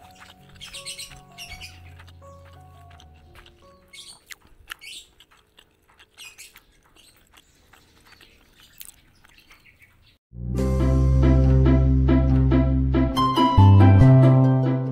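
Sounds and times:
background music: 0.0 - 4.4, 10.4 - 14.9
eating clicks and squeaky scrapes: 0.0 - 10.2.

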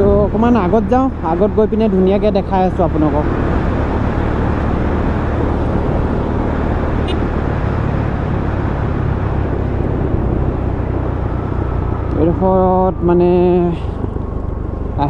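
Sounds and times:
wind and road noise: 0.0 - 15.0
motorcycle engine running: 3.6 - 15.0.

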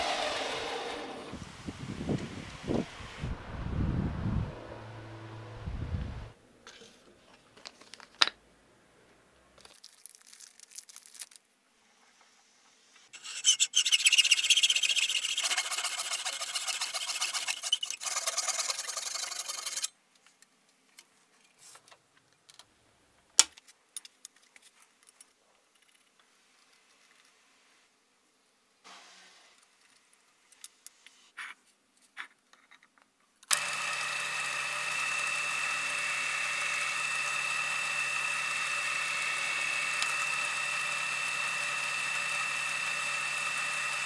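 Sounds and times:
file rasping on steel blade: 13.2 - 19.9.

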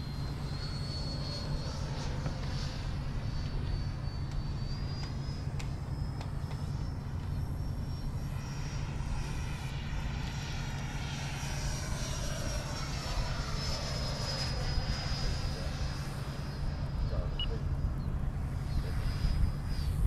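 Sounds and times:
model jet fan whining: 0.0 - 20.0
wind rumble on microphone: 17.0 - 20.0.

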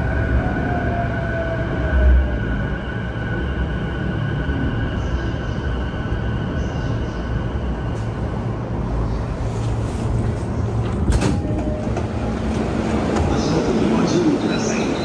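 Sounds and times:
train doors clunking open: 10.2 - 15.0.

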